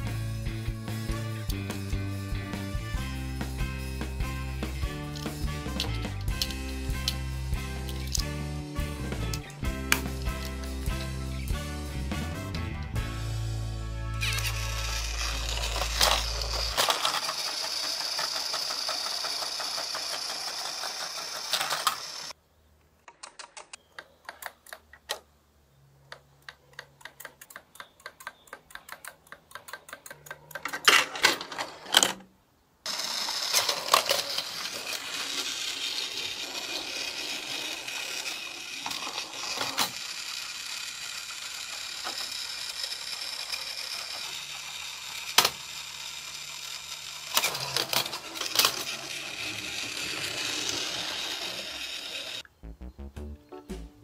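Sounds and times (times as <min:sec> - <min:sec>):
toy train motor whirring: 0:04.1 - 0:08.4, 0:14.2 - 0:22.4, 0:32.9 - 0:52.4
plastic wheels clicking on track: 0:14.2 - 0:22.4, 0:26.4 - 0:32.2, 0:32.9 - 0:52.4
toy lever mechanism ticking: 0:26.1 - 0:30.9.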